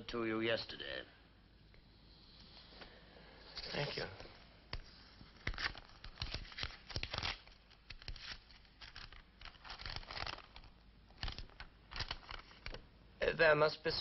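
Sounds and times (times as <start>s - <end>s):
paper rustling and crinkling: 3.5s - 12.8s.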